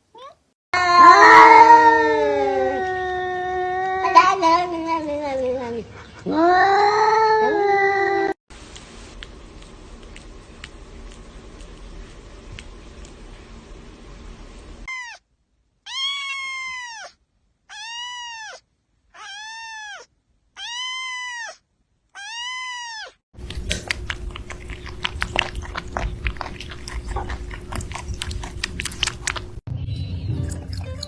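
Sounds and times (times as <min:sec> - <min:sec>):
kitten meowing: 0:14.9 - 0:15.2, 0:15.9 - 0:18.6, 0:19.2 - 0:21.6, 0:22.2 - 0:23.2
faint steady hum: 0:23.4 - 0:29.6.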